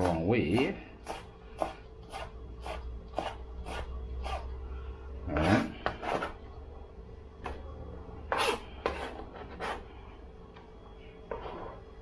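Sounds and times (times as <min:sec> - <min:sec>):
knife scraping cutting board: 0:00.0 - 0:04.5, 0:05.3 - 0:06.4, 0:08.3 - 0:09.9.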